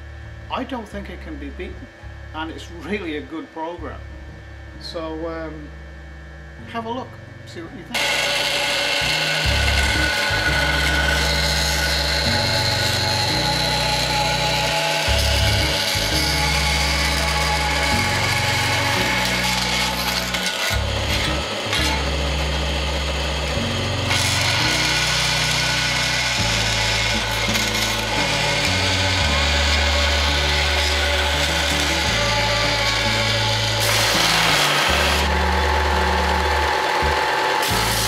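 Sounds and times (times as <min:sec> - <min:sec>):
bandsaw cutting metal: 0:08.0 - 0:38.0.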